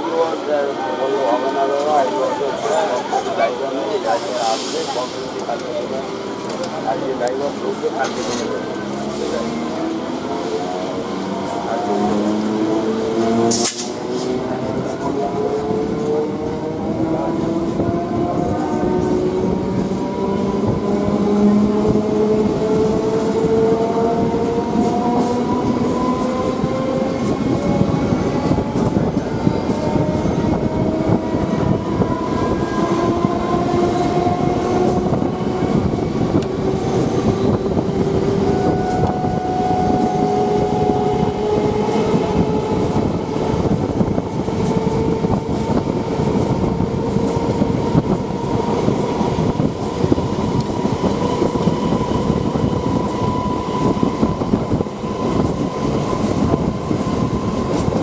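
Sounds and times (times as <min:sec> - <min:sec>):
train traction motors whining: 0:00.0 - 0:58.0.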